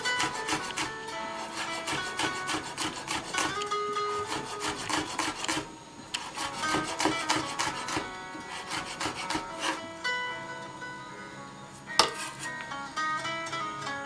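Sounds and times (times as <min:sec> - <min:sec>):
knife chopping on wooden board: 0:00.0 - 0:09.8.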